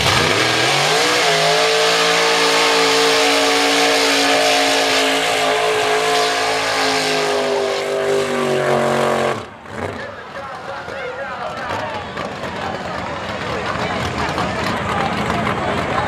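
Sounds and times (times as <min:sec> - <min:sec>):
truck engine revving hard: 0:00.0 - 0:10.3, 0:11.6 - 0:16.0.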